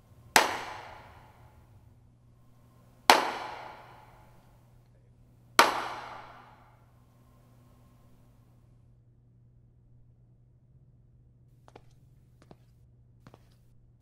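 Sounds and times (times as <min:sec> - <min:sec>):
echoing hand claps: 0:00.3 - 0:01.7, 0:03.0 - 0:04.6, 0:05.6 - 0:06.8.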